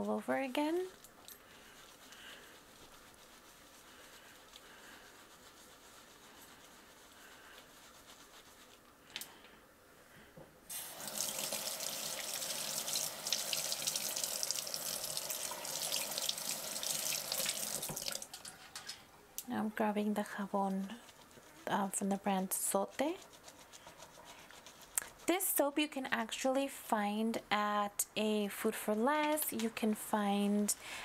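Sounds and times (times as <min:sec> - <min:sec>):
brush scrubbing on a pad: 0:01.6 - 0:08.9, 0:20.2 - 0:25.5
water running into a metal sink: 0:10.7 - 0:18.5.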